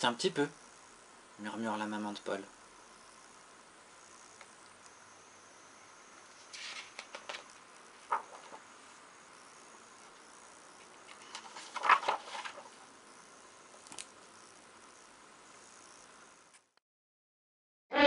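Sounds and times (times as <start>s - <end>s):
book pages turning: 6.5s - 8.6s, 11.0s - 12.8s.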